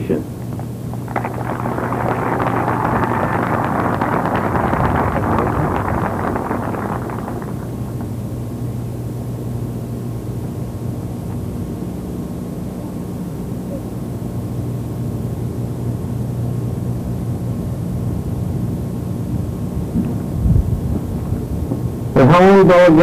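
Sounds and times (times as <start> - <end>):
steady low hum: 0.0 - 10.3
background noise: 0.0 - 11.2.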